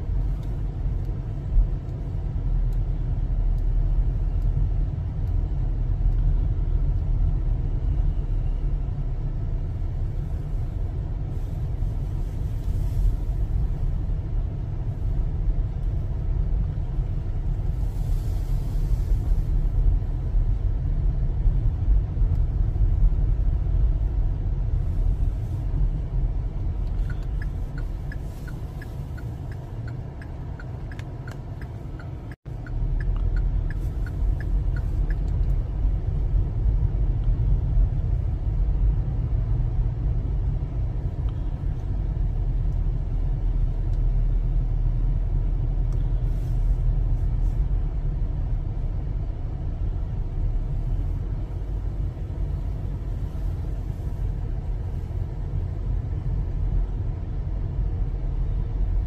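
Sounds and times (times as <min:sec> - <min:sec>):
car driving rumble inside cabin: 0:00.0 - 0:59.0
light ticks: 0:00.2 - 0:07.1, 0:26.6 - 0:35.6, 0:41.2 - 0:41.5, 0:43.9 - 0:44.1, 0:45.8 - 0:46.1.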